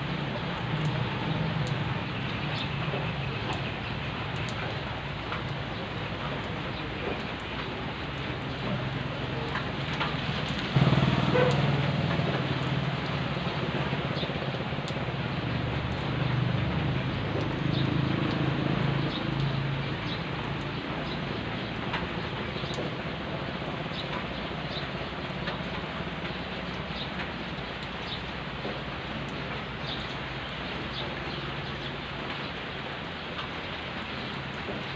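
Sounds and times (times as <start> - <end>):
rain falling on foliage and gravel: 0.0 - 34.9
faint drips: 0.1 - 34.9.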